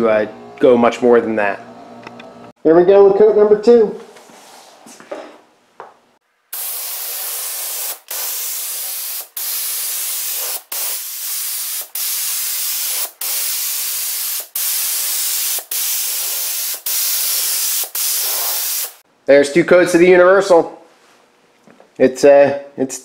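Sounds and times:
paint spray gun hissing: 0:06.6 - 0:19.0.

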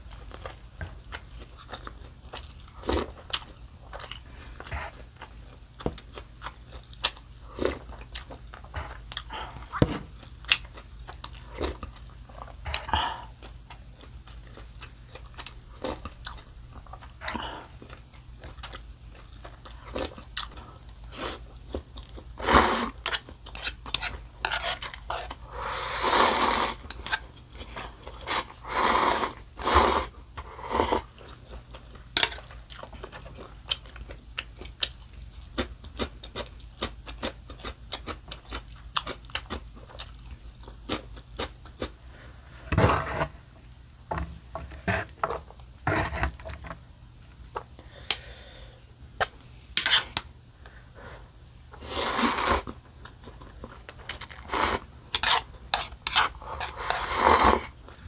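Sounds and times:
slurping noodle broth: 0:22.4 - 0:23.0, 0:24.5 - 0:26.9, 0:28.2 - 0:31.1, 0:51.8 - 0:52.7, 0:54.4 - 0:57.8.

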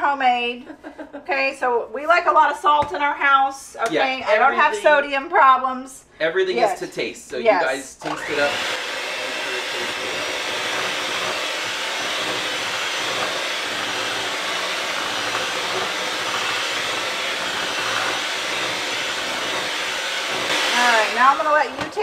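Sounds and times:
electric mixer running: 0:08.0 - 0:22.0.

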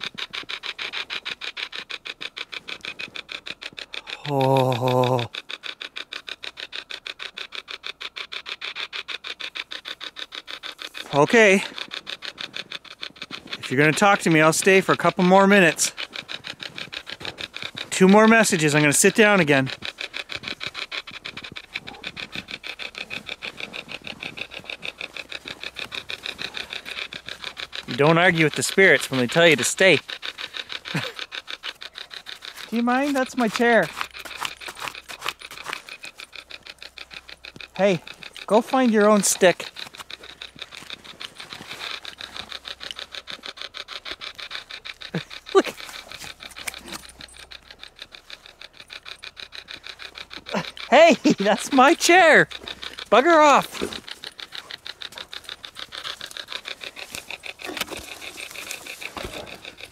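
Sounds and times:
pulsing radio static: 0:50.5 - 0:54.3
broadcast voice snatches: 0:50.9 - 0:53.9.

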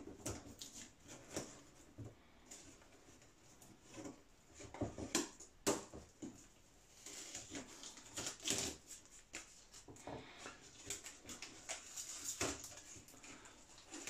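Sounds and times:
balsa wood cracking and creaking: 0:07.0 - 0:09.0.

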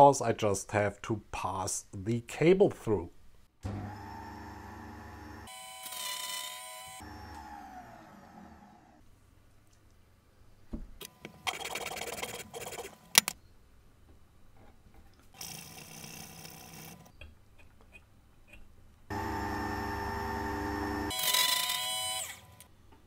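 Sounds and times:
circular saw motor whining: 0:03.7 - 0:09.0, 0:19.1 - 0:22.6.

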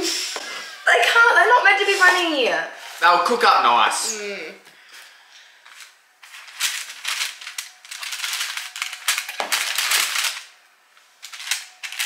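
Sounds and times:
baking paper crinkling: 0:05.6 - 0:10.6, 0:11.2 - 0:12.0.

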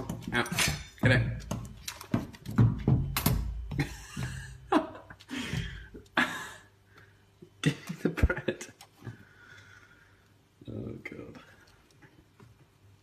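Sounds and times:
man chuckling breathily: 0:03.8 - 0:06.8.

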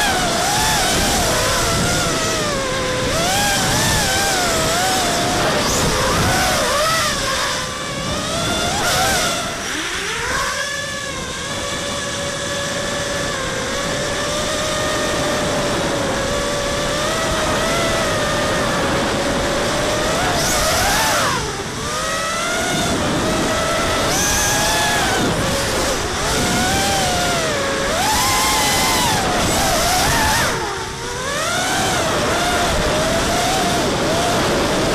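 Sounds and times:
quadcopter motors whining: 0:00.0 - 0:34.9
rushing wind: 0:00.0 - 0:34.9.

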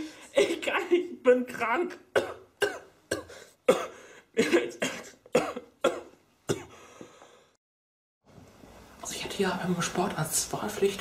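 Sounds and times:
woman coughing: 0:00.3 - 0:00.9, 0:02.1 - 0:06.8.

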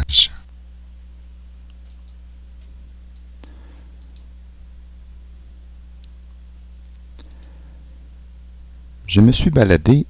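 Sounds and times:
steady low hum: 0:00.0 - 0:10.0
computer mouse clicking: 0:01.8 - 0:02.2, 0:04.0 - 0:04.3, 0:07.2 - 0:07.6.

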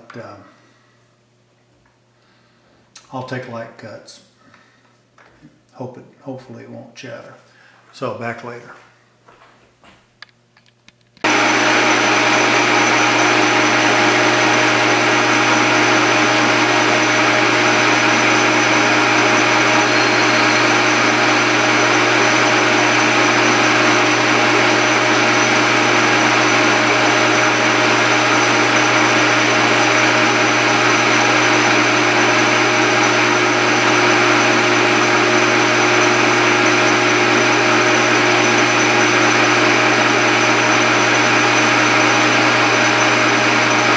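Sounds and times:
metal lathe motor and gear hum: 0:11.3 - 0:43.9.

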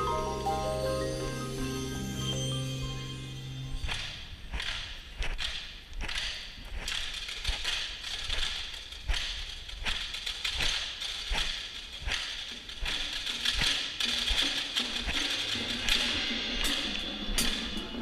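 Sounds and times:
sharp percussion strikes: 0:00.0 - 0:05.6, 0:12.1 - 0:18.0
ratchet-like rattle: 0:03.9 - 0:18.0.

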